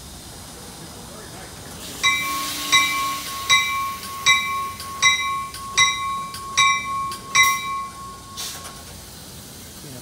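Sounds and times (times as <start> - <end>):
bell-like ding: 2.0 - 8.8
high warning beep: 2.0 - 8.9
short hiss: 8.4 - 9.8.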